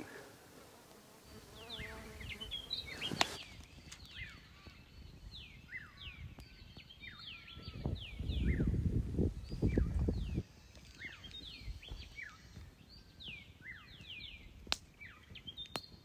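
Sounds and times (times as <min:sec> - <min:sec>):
fly buzzing: 0:00.0 - 0:04.0
birds whistling: 0:01.3 - 0:16.0.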